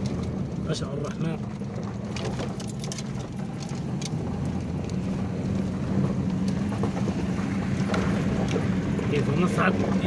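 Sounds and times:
car engine running at low revs: 0:00.0 - 0:10.0.

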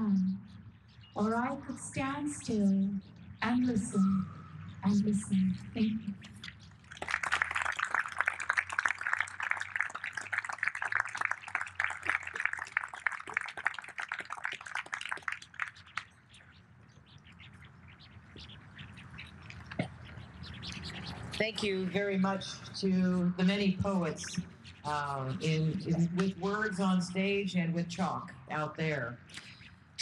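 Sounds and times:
audience applauding: 0:06.9 - 0:16.0.

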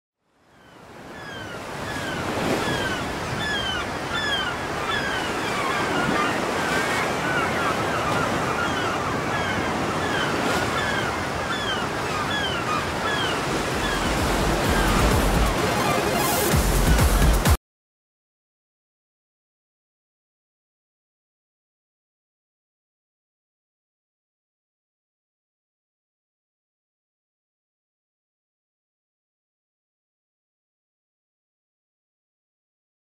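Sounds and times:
gulls calling: 0:00.5 - 0:17.6
waves breaking on beach: 0:00.6 - 0:17.5.

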